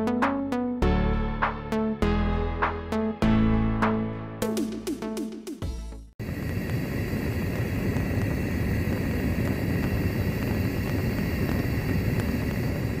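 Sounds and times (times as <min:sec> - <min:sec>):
gas burner flame rumble: 0:06.2 - 0:13.0.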